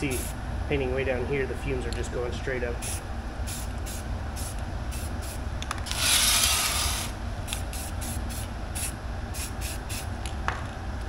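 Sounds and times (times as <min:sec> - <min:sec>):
ventilation fan hum: 0:00.0 - 0:11.0
spray paint can hissing: 0:02.8 - 0:10.1.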